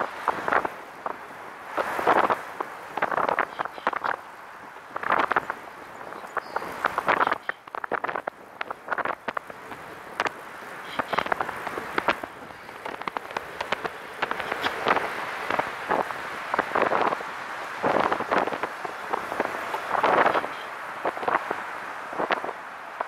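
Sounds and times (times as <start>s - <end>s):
steady hiss: 0.0s - 23.0s
clicks and rattling bursts: 6.3s - 17.2s.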